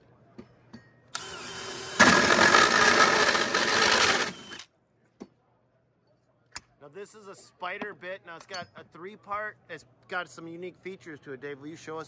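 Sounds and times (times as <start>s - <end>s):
cordless drill cutting wood: 1.2s - 4.7s.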